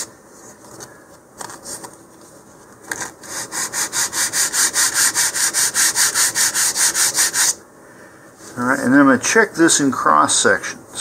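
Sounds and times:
sandpaper rubbing on wood: 0:03.2 - 0:07.6.

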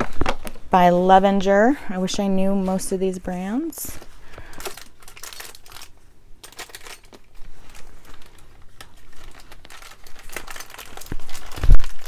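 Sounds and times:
faint crinkling: 0:03.8 - 0:12.0.

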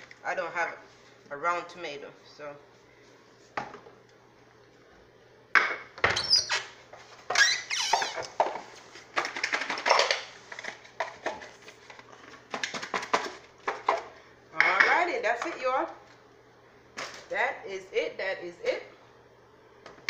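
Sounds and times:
squeak: 0:06.1 - 0:06.7, 0:07.4 - 0:08.2.

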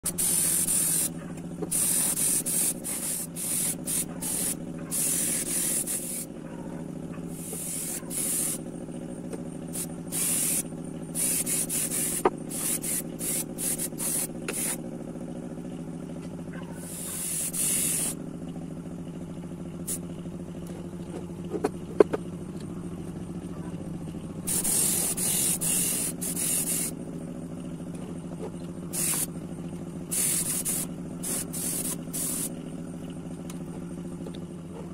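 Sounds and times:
paint spraying in hissing bursts: 0:00.0 - 0:06.3, 0:07.3 - 0:08.7, 0:09.7 - 0:14.8, 0:16.8 - 0:18.2, 0:19.8 - 0:20.0, 0:24.4 - 0:27.0, 0:28.9 - 0:29.4, 0:30.1 - 0:32.6
steady motor hum: 0:00.0 - 0:34.9.

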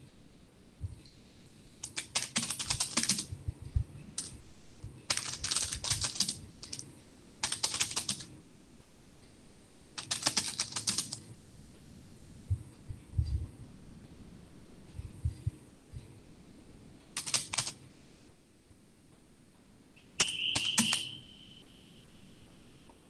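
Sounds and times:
typing on computer keyboard: 0:01.8 - 0:03.4, 0:04.2 - 0:04.4, 0:05.1 - 0:08.4, 0:10.0 - 0:11.3, 0:17.2 - 0:17.8, 0:20.2 - 0:21.2.

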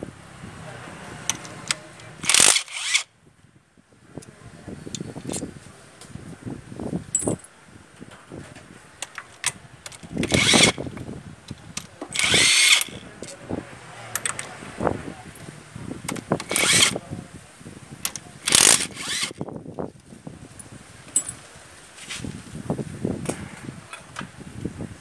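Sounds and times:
tool and parts clicking: 0:01.2 - 0:03.1, 0:09.0 - 0:13.4, 0:14.1 - 0:14.6, 0:16.1 - 0:17.0, 0:18.0 - 0:19.5
power driver spinning: 0:01.3 - 0:03.0, 0:09.9 - 0:13.4, 0:16.0 - 0:17.0, 0:18.0 - 0:19.6.

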